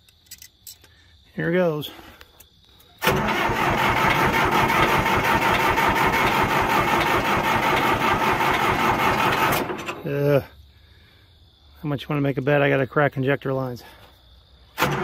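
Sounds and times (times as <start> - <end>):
diesel engine cranking: 3.0 - 10.4, 14.8 - 15.0.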